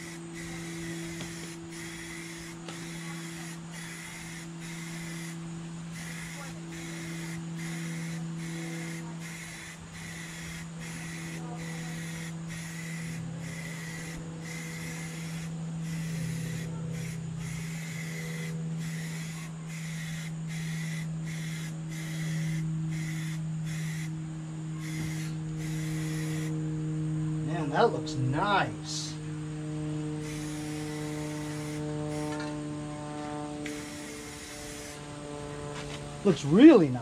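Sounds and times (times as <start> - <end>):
spray-paint can hissing: 0.0 - 24.1, 24.8 - 26.6, 30.2 - 32.4, 33.7 - 35.0
low hum: 0.0 - 37.0.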